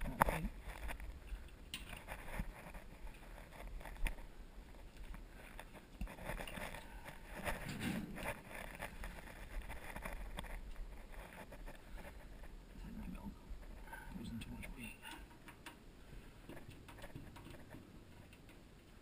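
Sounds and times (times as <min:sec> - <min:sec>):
scraping rustle: 0:00.0 - 0:15.3
faint low hum: 0:00.0 - 0:19.0
clicks and knocks on sheet metal: 0:16.5 - 0:18.6.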